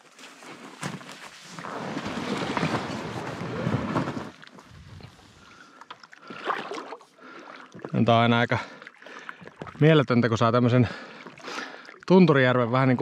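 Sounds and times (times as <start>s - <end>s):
inflatable raft fabric rustling: 0.0s - 5.5s.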